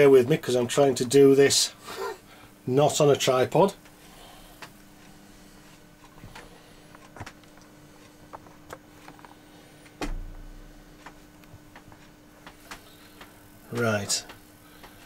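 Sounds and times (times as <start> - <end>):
faint steady hum: 0.0 - 15.0
dull knock: 10.0 - 10.6.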